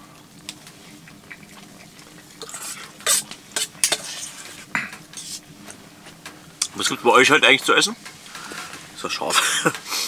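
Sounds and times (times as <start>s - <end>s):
spoons scraping metal plates: 2.4s - 5.4s.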